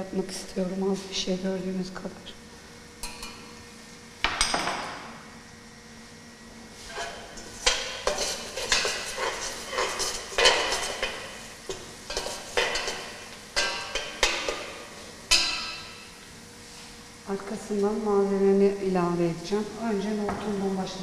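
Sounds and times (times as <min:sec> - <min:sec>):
metal spoon scraping pot: 0:06.9 - 0:14.6
paste sizzling: 0:06.9 - 0:14.7.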